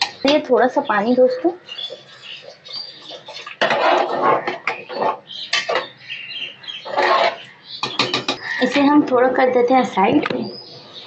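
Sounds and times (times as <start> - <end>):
metal ladle scraping a pot: 2.4 - 6.0, 6.8 - 8.8.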